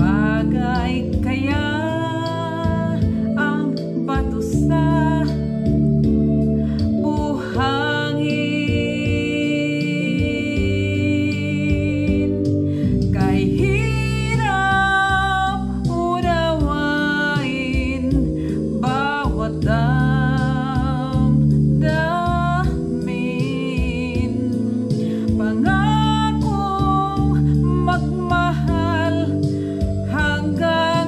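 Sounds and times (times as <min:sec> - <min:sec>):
instrumental backing music: 0:00.0 - 0:31.0
woman singing ballad with vibrato: 0:00.0 - 0:31.0.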